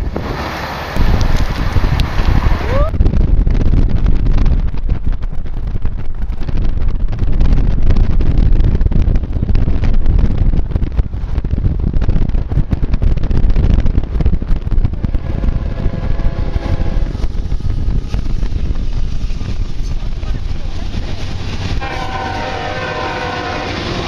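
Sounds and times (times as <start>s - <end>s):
road rumble: 0.0s - 24.0s
wind buffeting microphone: 0.0s - 24.0s
locomotive air horn chord: 21.8s - 24.0s.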